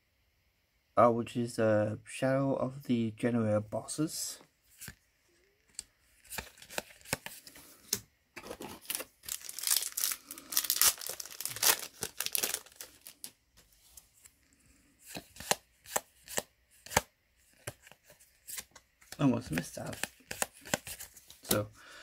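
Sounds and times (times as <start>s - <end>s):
foil wrapper tearing and crinkling: 8.6s - 13.3s.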